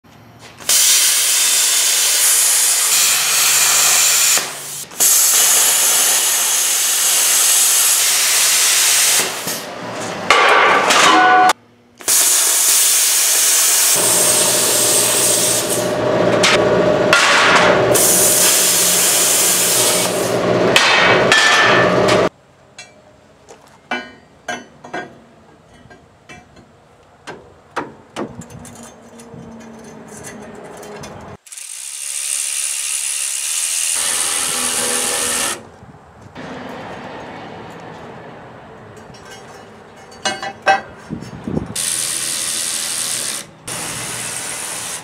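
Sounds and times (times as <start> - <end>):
cutting torch hissing: 0.6 - 9.7, 12.0 - 16.1, 17.9 - 20.6, 31.4 - 35.6, 41.8 - 45.0.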